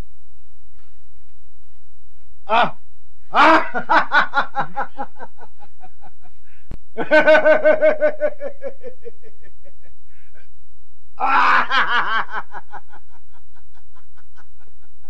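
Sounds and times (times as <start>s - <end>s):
low film soundtrack hum: 0.0s - 15.0s
man laughing: 3.3s - 6.2s, 7.0s - 9.8s, 11.2s - 14.8s.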